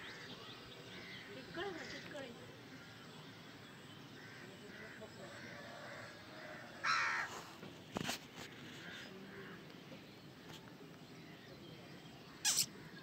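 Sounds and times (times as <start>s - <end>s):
crow-like caw: 4.2s - 7.5s.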